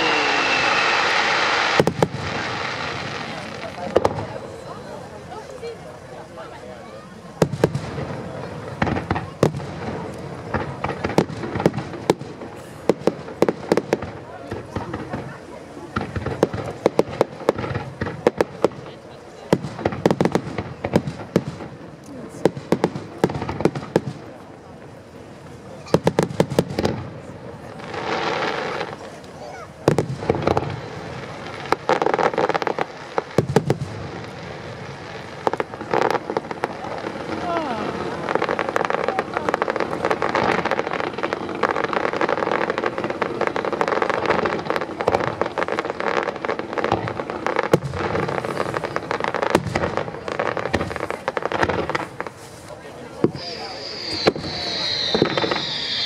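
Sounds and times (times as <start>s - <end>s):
firework shells bursting: 53.2s - 56.0s.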